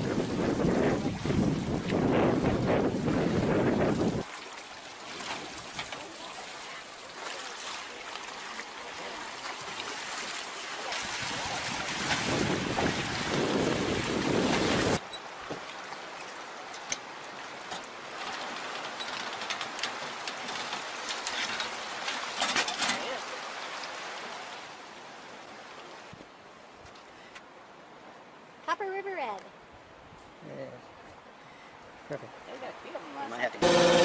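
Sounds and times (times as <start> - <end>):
water splashing and dripping: 0.0 - 26.2
rushing river water: 0.0 - 30.1, 30.9 - 34.0.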